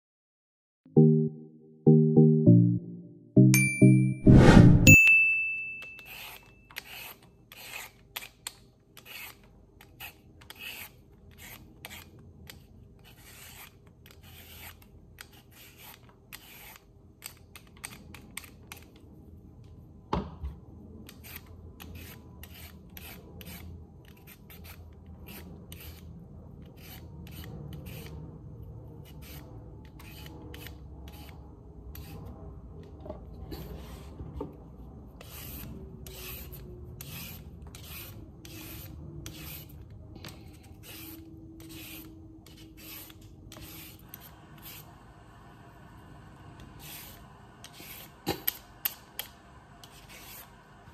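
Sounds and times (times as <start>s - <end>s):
vegetable peeler scraping carrot: 5.9s - 19.0s, 21.0s - 32.4s, 35.2s - 44.9s.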